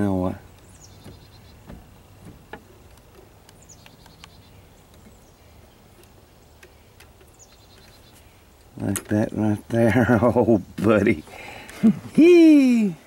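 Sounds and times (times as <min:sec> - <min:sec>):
faint high bird chirps: 0:00.1 - 0:02.0, 0:03.5 - 0:08.7.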